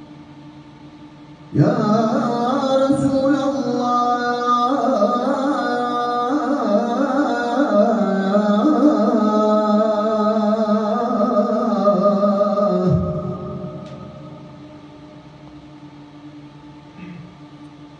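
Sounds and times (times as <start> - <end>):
man chanting melismatically: 1.5 - 14.5.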